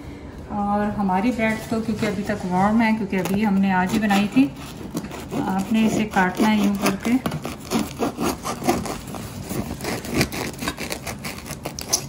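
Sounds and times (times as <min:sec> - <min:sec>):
knife sawing through crusty bread: 0:03.3 - 0:12.0.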